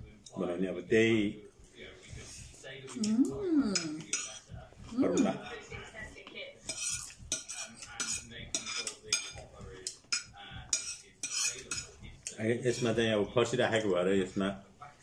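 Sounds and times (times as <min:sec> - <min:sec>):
voiced murmur: 0:02.9 - 0:04.1
cutlery clinking on plates: 0:03.8 - 0:04.6, 0:06.6 - 0:12.8.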